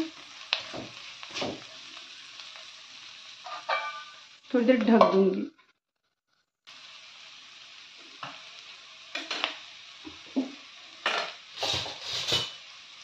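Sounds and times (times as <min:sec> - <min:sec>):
vegetables sizzling in oil: 0:00.0 - 0:13.0
spatula scraping and knocking pan: 0:00.5 - 0:01.8, 0:03.4 - 0:04.2, 0:10.3 - 0:12.6.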